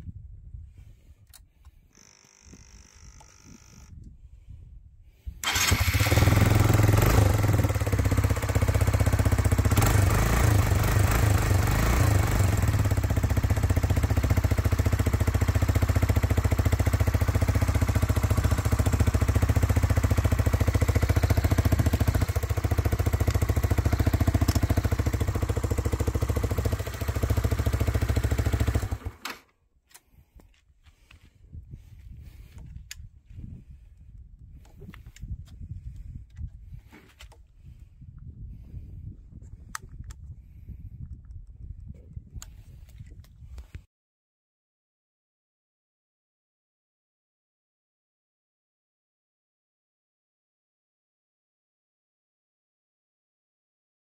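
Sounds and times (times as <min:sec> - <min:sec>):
faint starter whirr: 0:05.4 - 0:06.8
motorcycle engine idling: 0:05.4 - 0:29.2.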